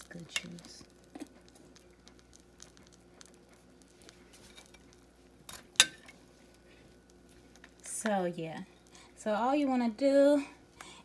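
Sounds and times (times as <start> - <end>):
utensil dabbing pan juices: 0.0 - 11.0
utensil clinking skillet: 4.4 - 6.2.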